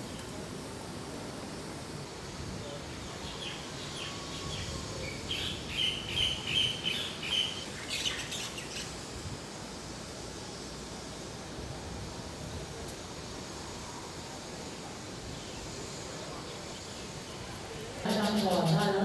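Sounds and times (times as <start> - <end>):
background hiss: 0.0 - 19.0
bird chirping: 3.3 - 8.9.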